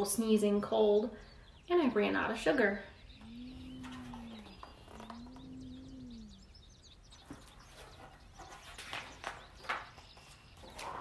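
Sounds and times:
small birds chirping: 0.0s - 11.0s
bird cooing: 2.8s - 8.0s.

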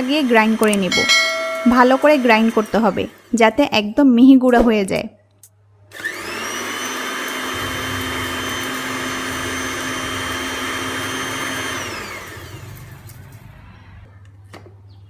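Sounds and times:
electric grinder motor whining: 6.0s - 13.5s.

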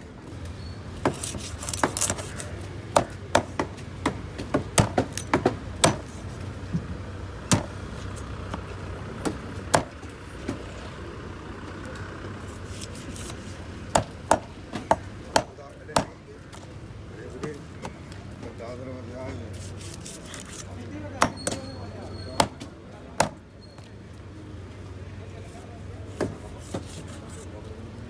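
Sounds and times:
knife chopping on wooden board: 1.0s - 6.1s, 13.2s - 16.1s.

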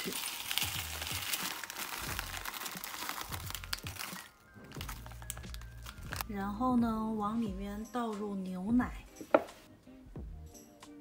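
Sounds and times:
plastic wrapper crinkling: 0.0s - 6.3s
soft background music: 0.0s - 11.0s.

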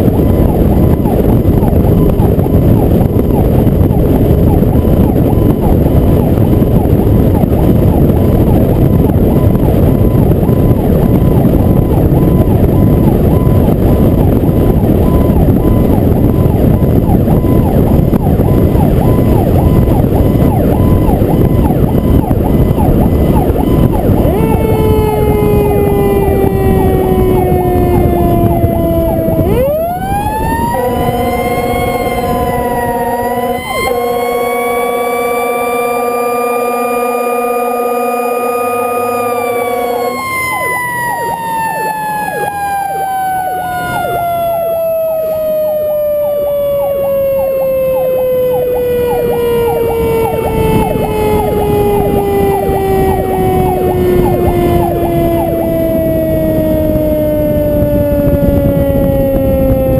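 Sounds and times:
fire truck siren: 0.0s - 59.9s
wind and road noise: 0.0s - 59.9s
truck horn tones: 22.7s - 44.2s, 48.4s - 56.6s.

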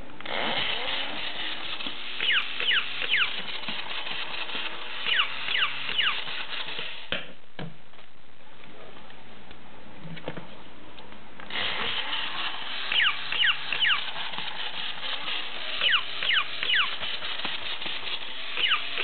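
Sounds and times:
toy motor running: 0.3s - 7.1s, 11.5s - 19.0s
toy dog high yips: 2.2s - 3.6s, 5.0s - 6.4s, 12.9s - 14.2s, 15.8s - 17.1s, 18.5s - 19.0s.

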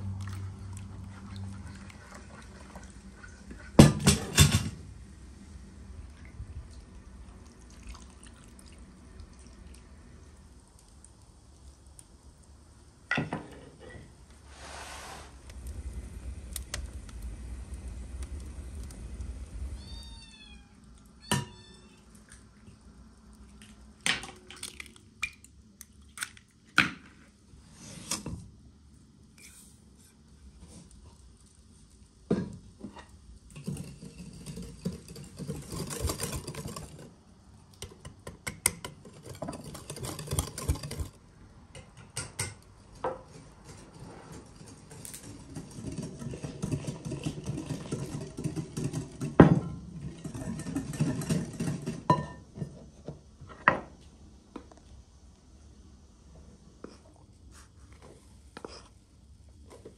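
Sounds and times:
utensils and dishes clattering: 3.8s - 4.8s, 33.5s - 37.1s, 38.8s - 41.2s, 41.8s - 52.5s
cat meowing: 19.8s - 22.1s.

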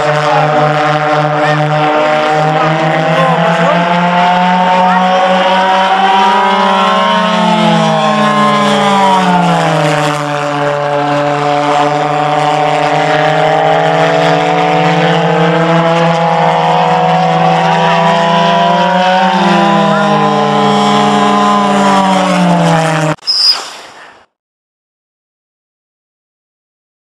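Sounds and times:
pulsejet engines buzzing: 0.0s - 23.2s.

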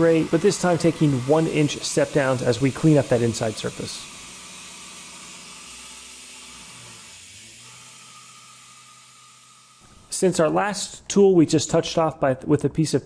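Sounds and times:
low machine hum: 0.0s - 5.0s
milling machine cutting hiss: 0.0s - 10.8s.

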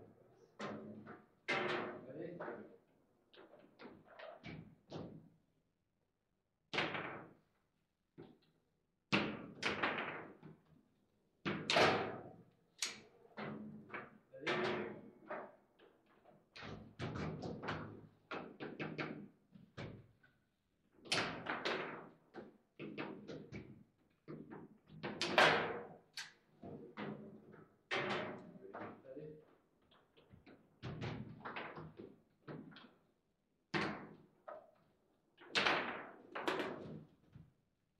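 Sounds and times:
table football knocks and clacks: 0.6s - 2.7s, 6.7s - 7.4s, 9.1s - 10.6s, 11.5s - 15.9s, 16.5s - 20.1s, 21.0s - 29.0s, 30.0s - 33.0s, 33.7s - 34.8s, 35.4s - 37.5s.

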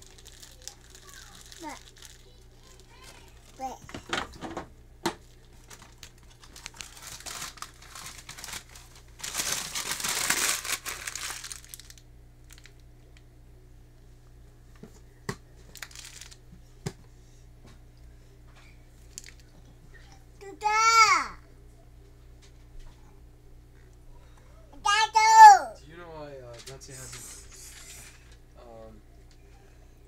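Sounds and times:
crinkling rustling handling noise: 0.0s - 4.2s, 5.1s - 12.9s, 15.6s - 16.6s, 18.6s - 19.6s, 26.3s - 28.4s
steady low hum: 0.0s - 24.9s.

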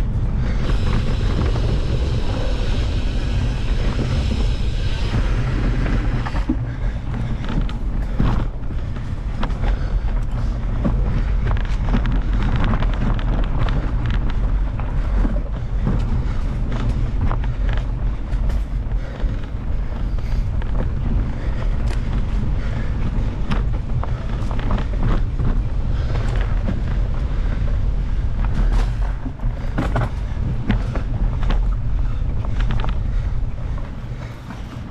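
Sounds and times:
bike clicks and rattles: 0.0s - 34.9s
wind rumble on microphone: 0.0s - 34.9s.

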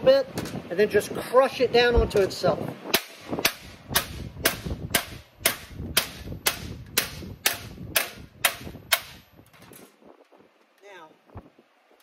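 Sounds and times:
hammer blows on sheet metal: 2.9s - 9.3s.

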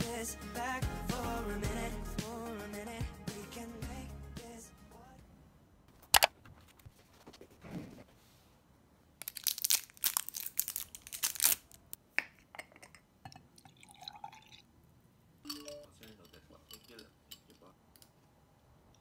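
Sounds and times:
glass jar clinking and scraping: 12.5s - 14.4s, 15.5s - 17.7s
coffee pouring over ice: 13.3s - 14.6s.

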